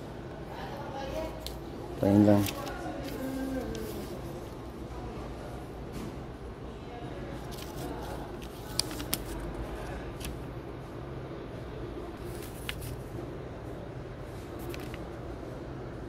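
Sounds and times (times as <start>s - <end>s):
low indoor room hum: 0.0s - 16.0s.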